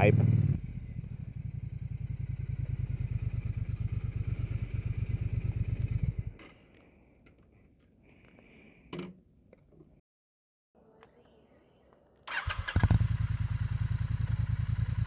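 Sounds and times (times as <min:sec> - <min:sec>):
motorcycle engine running: 0:00.0 - 0:06.4, 0:12.3 - 0:15.0.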